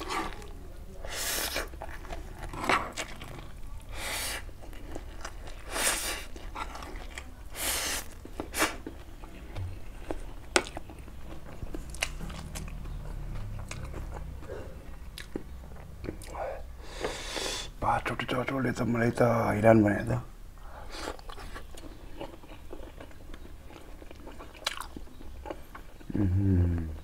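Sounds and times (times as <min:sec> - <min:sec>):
man chewing with lip smacks: 0:08.0 - 0:17.3, 0:20.9 - 0:26.2.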